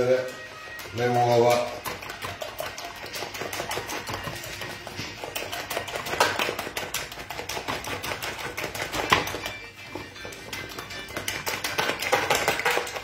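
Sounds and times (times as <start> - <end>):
fork beating eggs in plastic tub: 0.0 - 13.0.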